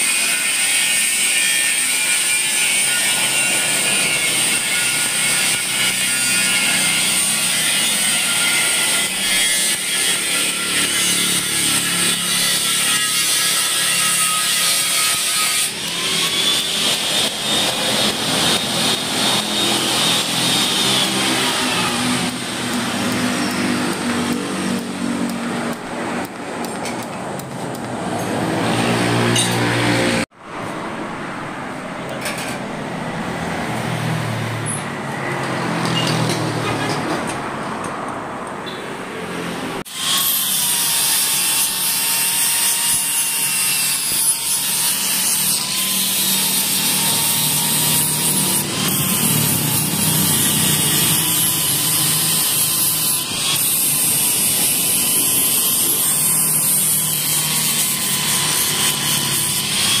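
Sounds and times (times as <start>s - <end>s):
power tool whining on metal: 0.0s - 26.3s, 39.9s - 60.0s.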